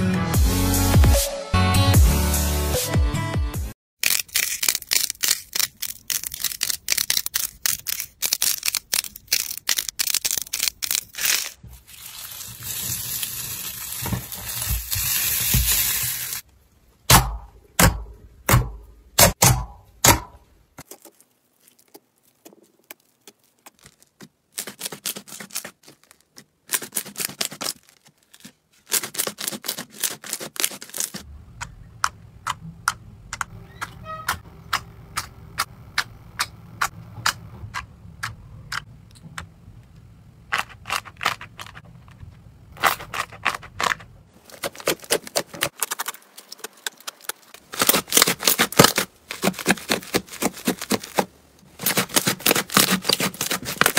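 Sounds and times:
slime crackling and popping: 4.0s - 16.4s, 20.8s - 31.2s, 44.6s - 53.9s
slime squishing: 20.8s - 31.2s, 42.8s - 53.9s.

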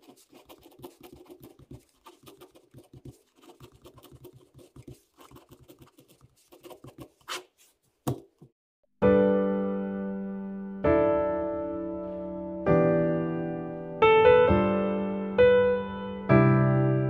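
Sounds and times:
ballpoint pen scratching on paper: 0.0s - 8.2s
piano chord: 9.0s - 17.0s.

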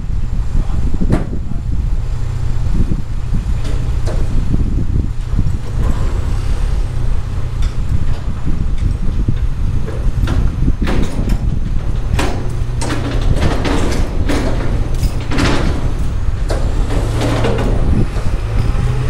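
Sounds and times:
heavy vehicle engine humming: 0.0s - 19.0s
metallic clanks and knocks: 3.6s - 4.6s, 5.2s - 19.0s.

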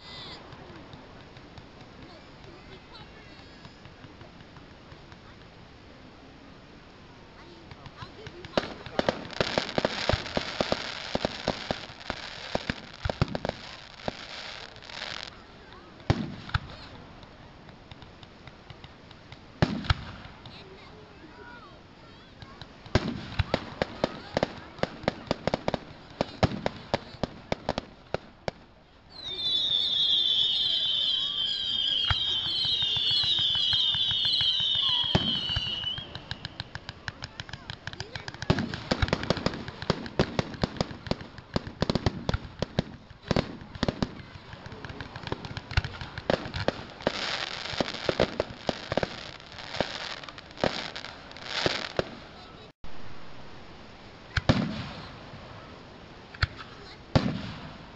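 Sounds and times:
fireworks bangs: 0.0s - 5.6s, 7.4s - 53.1s, 54.3s - 55.7s, 56.3s - 57.9s
fireworks popping: 0.0s - 6.0s, 7.3s - 53.0s, 54.3s - 57.9s
fireworks hiss: 0.0s - 6.3s, 6.9s - 57.9s
firework whistles: 29.1s - 36.9s.

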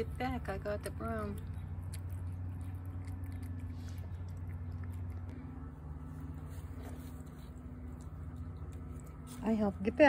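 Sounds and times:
cat chewing wet food: 0.0s - 9.3s
steady low hum: 0.0s - 10.0s.

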